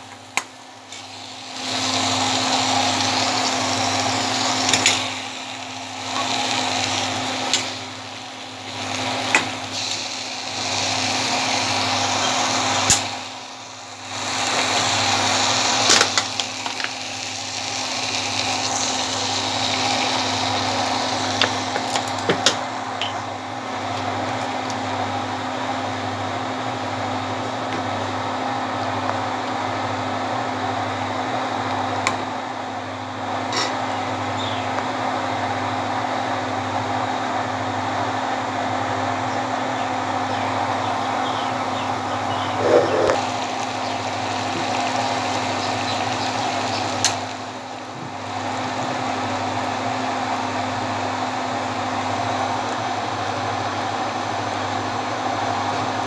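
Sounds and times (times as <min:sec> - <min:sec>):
food sizzling in a wok: 0:00.0 - 0:56.0
steady mechanical hum: 0:00.0 - 0:56.0.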